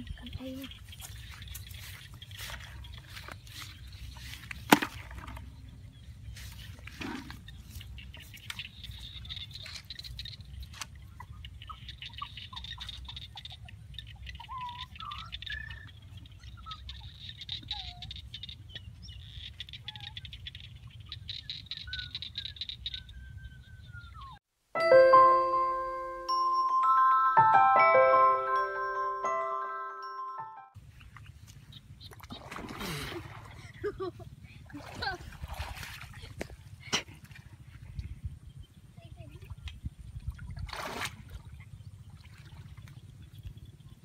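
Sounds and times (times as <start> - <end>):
wind rumble on microphone: 34.3 - 44.0.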